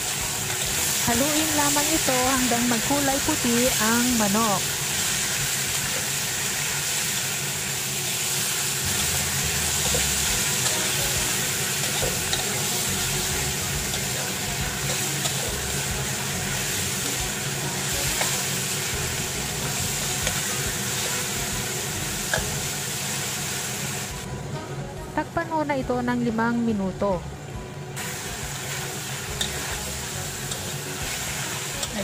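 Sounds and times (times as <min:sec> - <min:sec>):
chicken sizzling in hot oil: 0:00.0 - 0:24.3, 0:28.0 - 0:32.0
metal spatula scraping wok: 0:08.9 - 0:22.7, 0:28.1 - 0:32.0.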